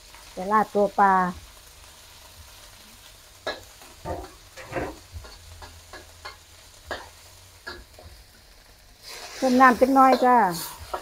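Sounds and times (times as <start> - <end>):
curry paste frying in oil: 0.0 - 11.0
metal spatula scraping wok: 3.4 - 11.0.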